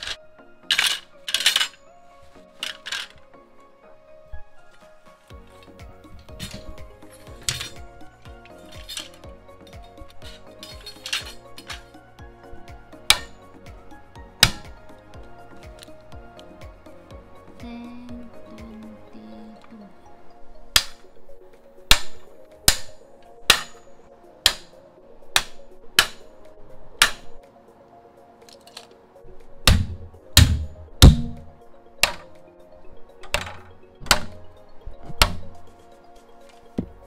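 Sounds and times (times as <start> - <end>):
heavier knocks: 29.7 - 31.5.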